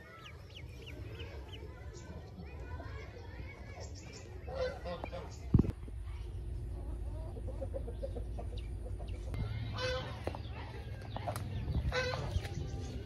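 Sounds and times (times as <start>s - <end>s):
waterfowl calling: 11.9s - 12.4s.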